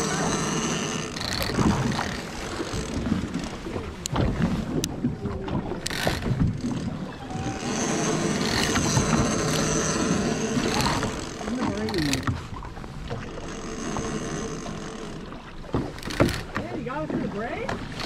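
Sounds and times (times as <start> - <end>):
fishing reel cranked: 0.0 - 4.2, 5.7 - 12.5, 13.3 - 16.6
boat engine running: 0.0 - 18.0
water washing alongside: 0.0 - 18.0
sharp clicks: 0.8 - 4.2, 5.8 - 10.0, 10.6 - 12.4, 15.8 - 16.7.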